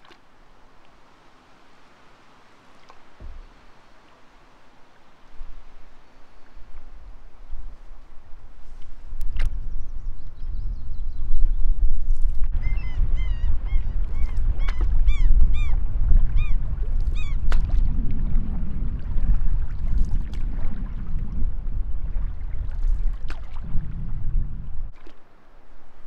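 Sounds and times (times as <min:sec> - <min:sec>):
wind rumbling on microphone: 0:03.2 - 0:03.8, 0:05.3 - 0:26.0
bird calling: 0:12.5 - 0:15.8, 0:16.4 - 0:17.4.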